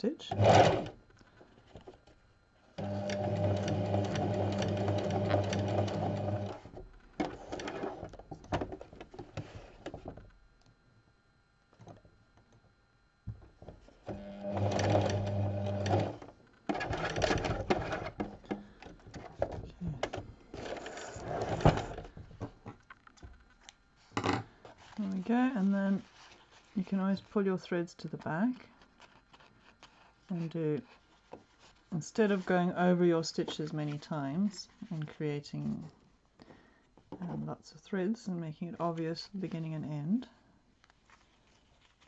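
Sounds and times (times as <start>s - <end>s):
sewing machine stitching: 0.2s - 1.0s, 2.8s - 8.1s, 14.1s - 18.6s
rustling: 23.4s - 27.4s, 28.1s - 32.7s, 40.8s - 42.0s.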